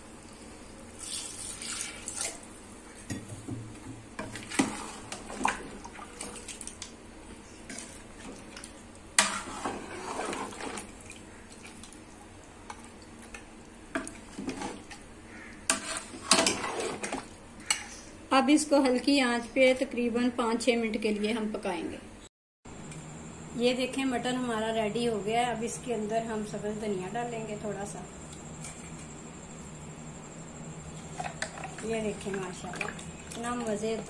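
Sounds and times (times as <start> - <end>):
metal ladle scraping pot: 9.2 - 10.9, 15.7 - 18.0.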